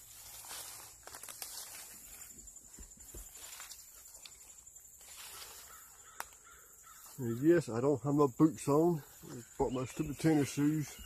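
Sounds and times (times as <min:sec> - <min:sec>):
steps on leaf litter: 0:00.0 - 0:07.3
insects trilling: 0:00.0 - 0:11.0.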